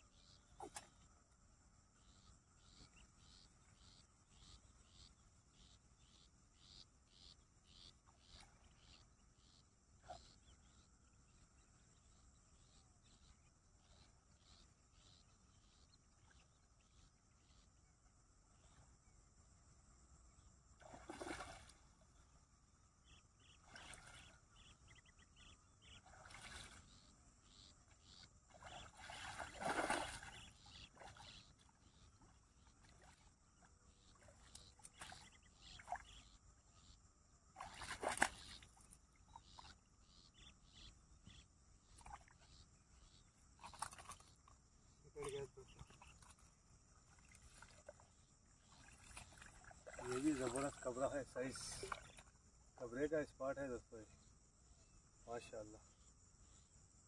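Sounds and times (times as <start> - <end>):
insects chirping: 0.0 - 57.0
fish thrashing and splashing: 28.9 - 30.4.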